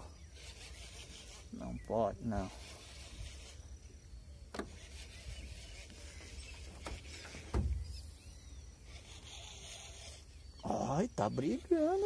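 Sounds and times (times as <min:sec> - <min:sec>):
dull thump: 0:06.6 - 0:08.0.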